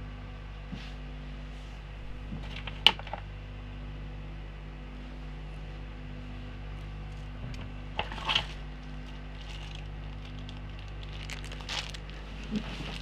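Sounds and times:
steady low hum: 0.0 - 13.0
rummaging rustles and clatters: 8.0 - 13.0.

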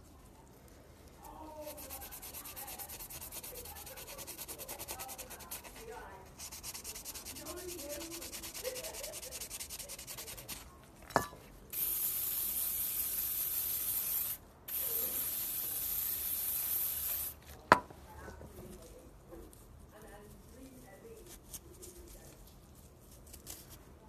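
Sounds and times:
scouring pad scrubbing metal: 1.6 - 10.6
loud steady hiss: 11.8 - 17.4.

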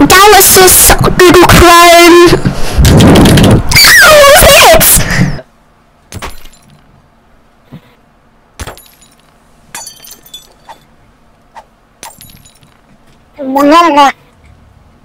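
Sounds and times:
glass panes smashing: 8.6 - 10.6
breaking glass cracks and clinks: 8.6 - 10.7.

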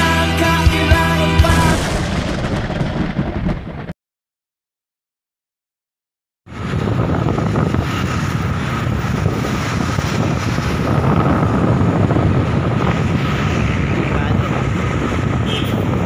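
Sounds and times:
passing road traffic: 6.5 - 16.0
wind buffeting microphone: 6.5 - 16.0.

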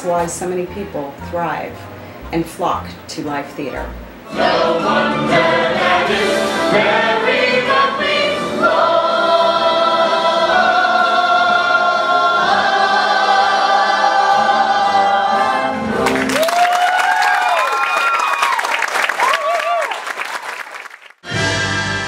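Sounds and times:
cast singing with accompaniment: 4.2 - 16.4
audience applause: 16.0 - 21.2.

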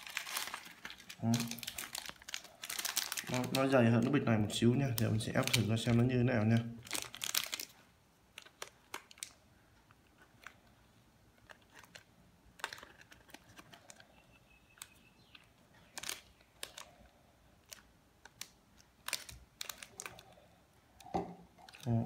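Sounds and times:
foil bag crinkling: 0.0 - 9.4, 11.4 - 14.2, 14.8 - 17.0, 17.6 - 20.4.

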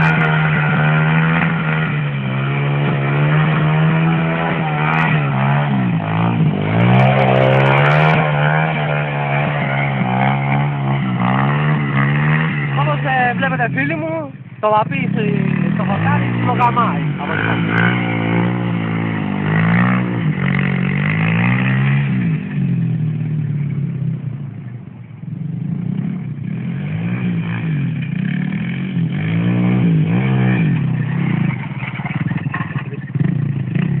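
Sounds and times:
moped engine revving: 0.0 - 34.0.

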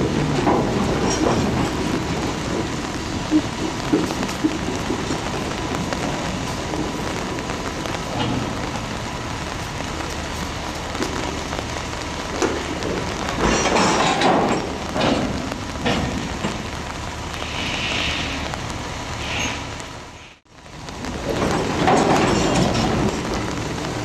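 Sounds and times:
steady rain: 0.0 - 24.0.

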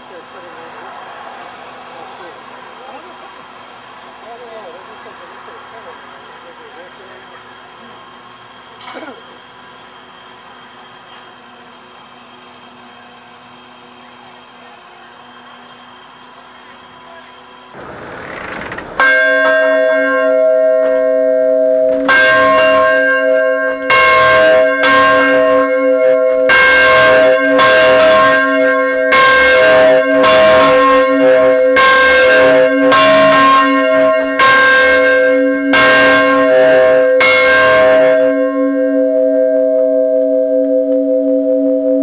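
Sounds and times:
church bell ringing: 19.0 - 42.0.

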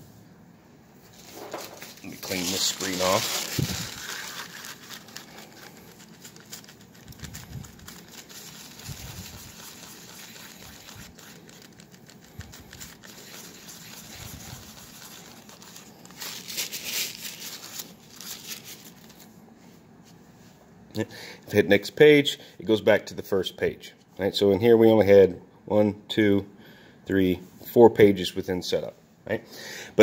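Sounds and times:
cloth rubbing on screen: 1.0 - 20.6.

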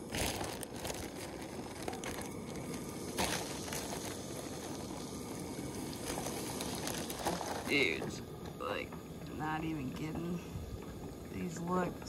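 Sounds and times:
fish frying in hot oil: 0.0 - 8.1.

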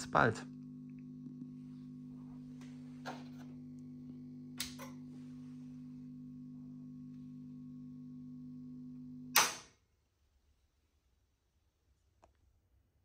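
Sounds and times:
low mains hum: 0.0 - 13.0.

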